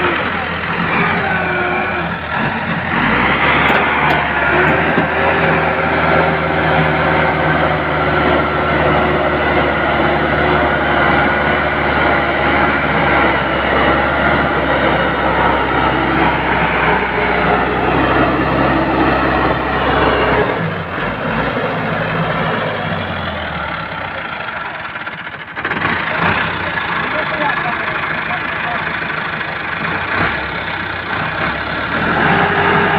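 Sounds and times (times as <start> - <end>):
grain thresher whirring: 0.0 - 32.9
tractor diesel engine running: 0.0 - 32.9.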